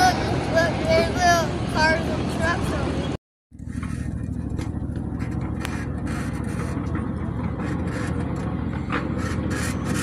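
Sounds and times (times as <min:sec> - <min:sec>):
miniature train rumbling on track: 0:03.6 - 0:10.0.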